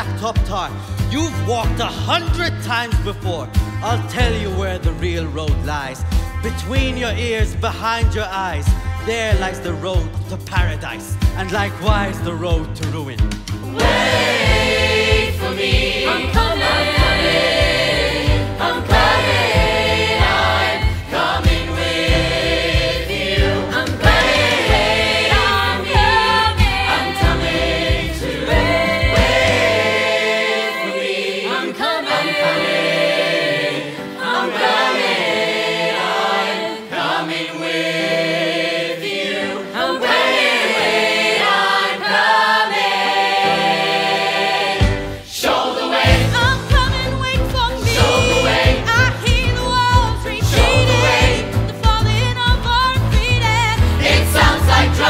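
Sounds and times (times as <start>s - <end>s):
voices singing in harmony: 13.6s - 55.0s.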